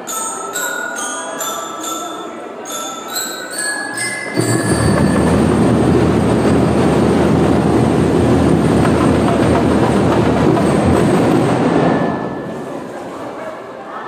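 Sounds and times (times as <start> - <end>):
bell lyre notes: 0.0 - 7.4
loud continuous drumming: 4.4 - 12.2.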